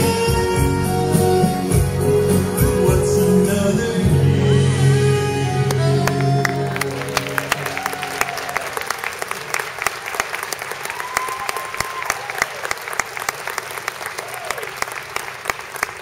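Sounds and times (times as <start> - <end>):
held music chord: 0.0 - 7.8
audience applauding: 5.6 - 16.0
audience cheering: 5.7 - 16.0.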